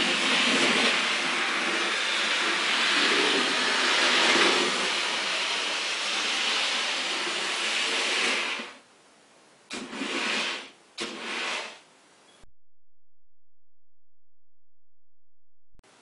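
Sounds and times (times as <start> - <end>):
model train whirring: 0.0 - 8.8.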